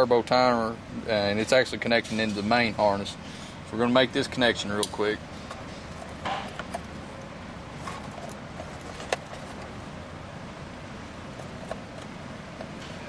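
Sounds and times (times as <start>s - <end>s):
steady background noise: 0.0s - 13.0s
plastic connectors being handled: 5.4s - 9.9s, 11.3s - 13.0s.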